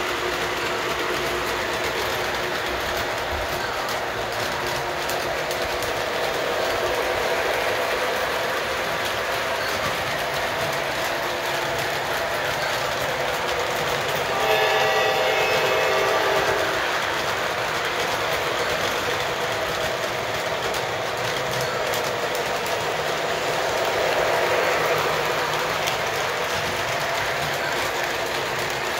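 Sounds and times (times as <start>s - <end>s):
model train wheels and motor: 0.0s - 28.9s
model train horn: 14.1s - 17.6s.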